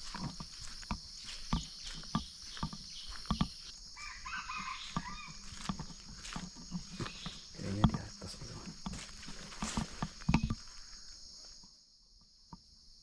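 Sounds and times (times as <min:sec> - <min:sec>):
crackling steps: 0:00.0 - 0:11.7
rooster crowing: 0:04.0 - 0:05.6.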